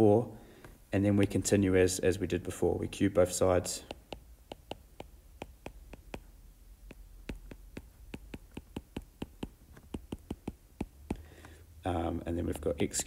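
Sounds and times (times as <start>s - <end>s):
stylus tapping on tablet screen: 3.8s - 11.6s.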